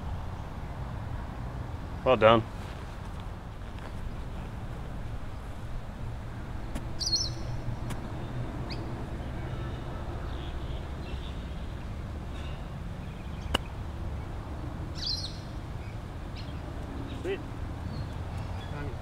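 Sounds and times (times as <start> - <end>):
birds chirping: 6.4 - 19.0.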